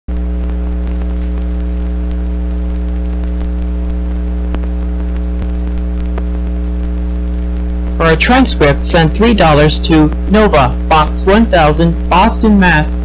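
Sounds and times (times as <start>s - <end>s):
clicks and pops: 0.1s - 8.0s
film soundtrack electrical hum: 0.1s - 13.0s.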